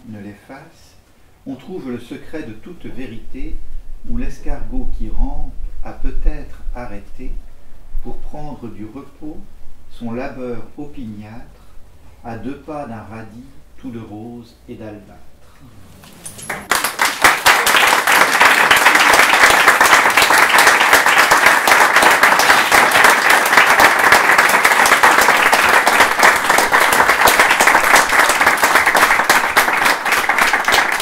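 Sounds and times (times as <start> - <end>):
audience applauding: 16.0 - 31.0.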